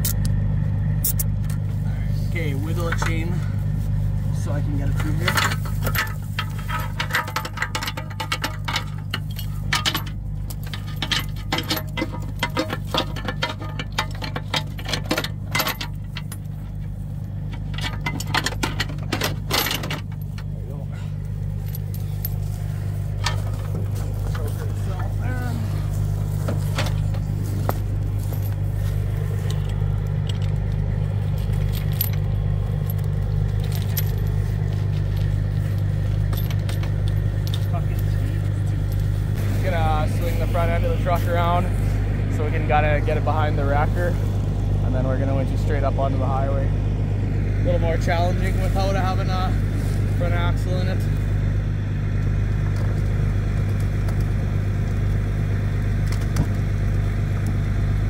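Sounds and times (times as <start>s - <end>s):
engine humming: 0.0s - 58.0s
metal chain clinking and rattling: 4.4s - 39.4s.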